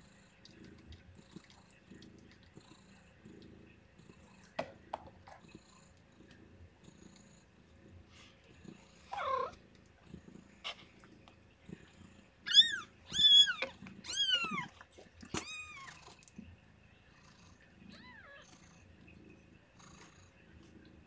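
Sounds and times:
cat purring: 0.0 - 21.0
kittens crying: 12.5 - 14.7, 15.4 - 16.0.

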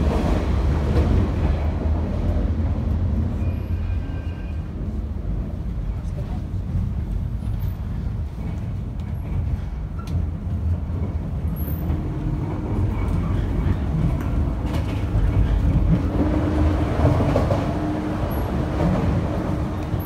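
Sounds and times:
train wheels rumbling: 0.0 - 20.0.

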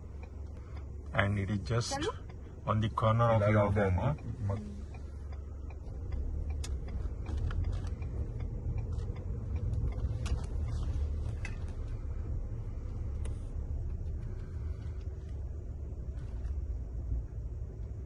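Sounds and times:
car driving rumble: 0.0 - 18.0
light clicks and creaks: 4.2 - 12.2.

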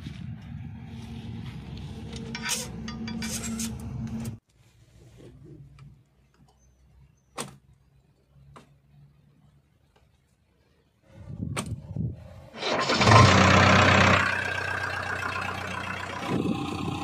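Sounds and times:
engine running: 12.5 - 17.0.

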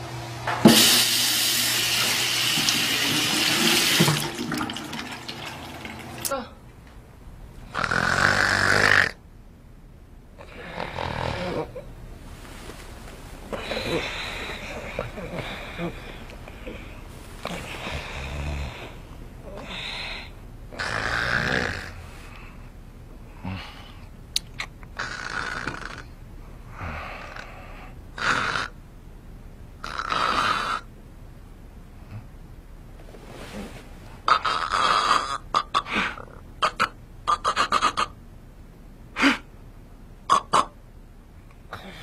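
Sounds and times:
woman snoring: 7.7 - 9.2, 10.4 - 11.8, 13.6 - 22.0, 25.0 - 26.1, 29.8 - 30.9.

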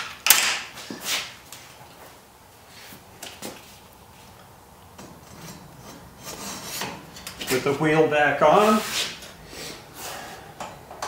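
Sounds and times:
clunks and scrapes on metal bench: 5.0 - 7.5.

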